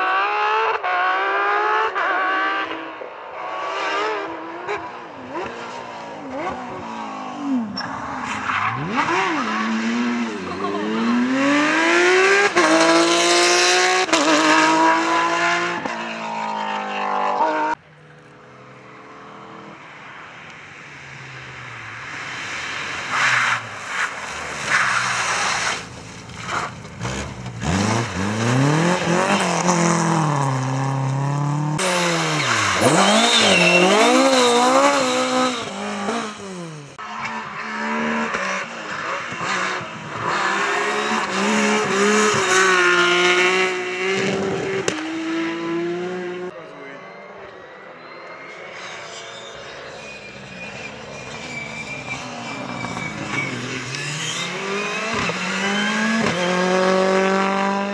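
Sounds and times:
rally car engine revving: 0:00.0 - 0:17.8, 0:21.7 - 0:46.5, 0:48.7 - 0:57.9
cars passing at full throttle: 0:00.0 - 0:57.9.

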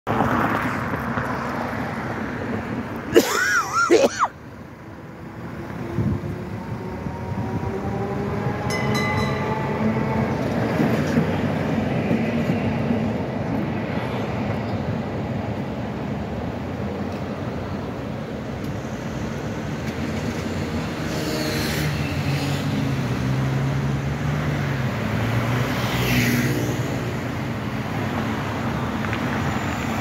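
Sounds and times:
traffic noise: 0:00.0 - 0:30.0
electric tram passing: 0:00.1 - 0:30.0
wavering tram squeal: 0:05.8 - 0:12.7.

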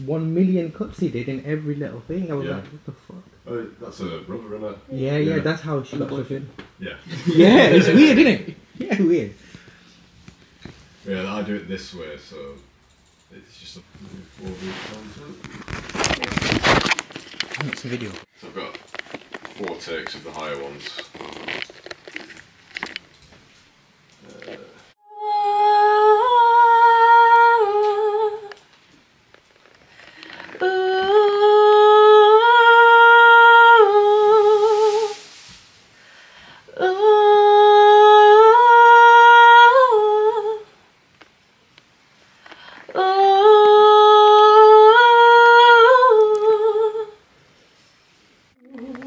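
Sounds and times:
brief hiss: 0:34.4 - 0:36.4.

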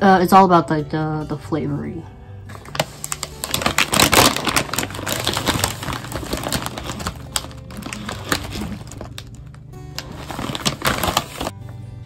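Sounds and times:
snack bag crinkling: 0:02.5 - 0:11.5.

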